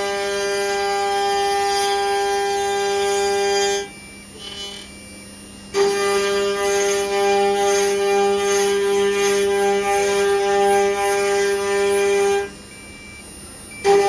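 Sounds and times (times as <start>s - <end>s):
router cutters whining in wood: 0.0s - 14.0s.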